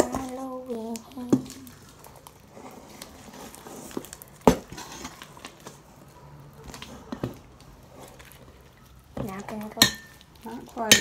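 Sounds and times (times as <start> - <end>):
slime kneaded by hand: 0.0 - 10.5.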